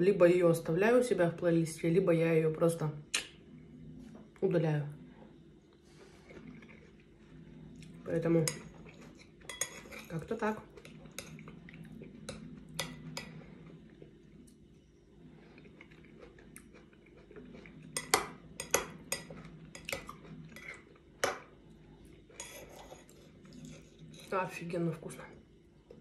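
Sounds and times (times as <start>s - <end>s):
metal spoon clinking on ceramic bowl: 9.5s - 10.1s.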